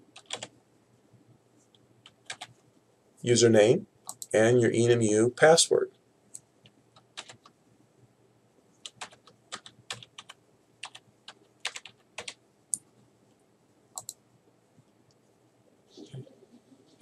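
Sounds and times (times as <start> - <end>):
computer keyboard typing: 0.1 - 0.5, 2.0 - 2.6, 4.1 - 4.3, 6.9 - 7.6, 8.8 - 12.8, 14.0 - 14.2.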